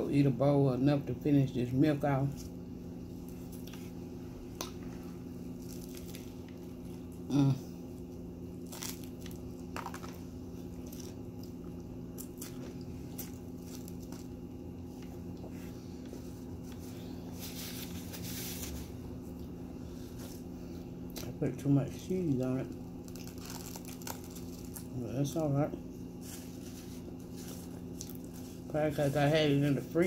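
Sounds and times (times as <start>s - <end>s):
low background hum: 0.0s - 30.0s
chewing and biting sandwich: 5.4s - 21.3s, 22.8s - 25.0s, 26.3s - 28.7s.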